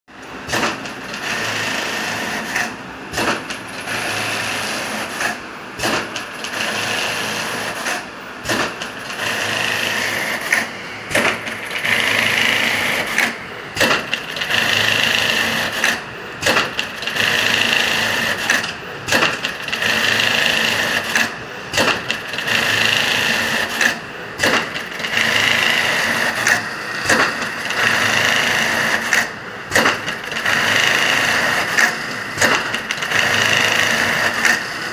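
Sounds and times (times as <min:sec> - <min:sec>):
sewing machine stitching: 0:08.6 - 0:34.7.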